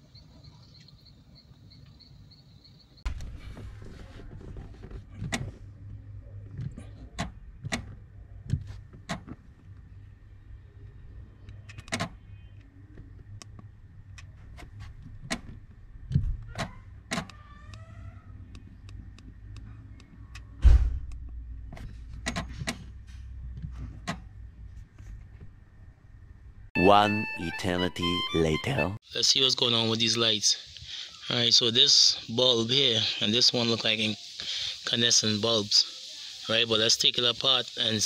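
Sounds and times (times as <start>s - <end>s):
heavy thump: 20.6s - 21.1s.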